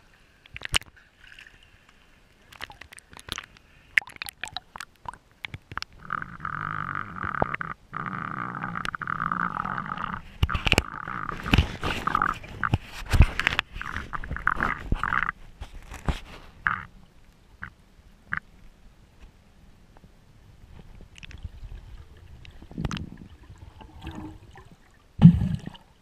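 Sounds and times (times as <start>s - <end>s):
water splashes: 0.5s - 6.2s, 21.1s - 26.0s.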